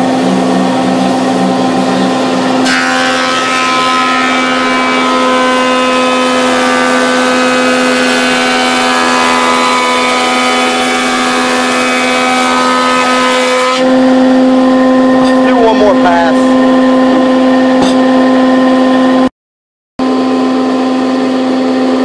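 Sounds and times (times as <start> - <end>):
planer humming: 0.0 - 19.3
planer knives cutting board: 17.1 - 18.2.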